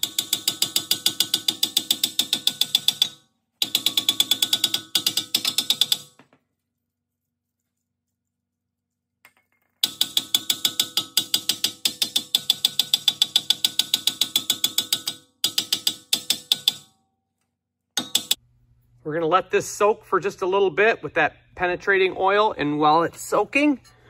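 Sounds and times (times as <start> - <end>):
hammer tapping ringing rotor: 0.0 - 6.2, 9.8 - 16.9, 18.0 - 18.4.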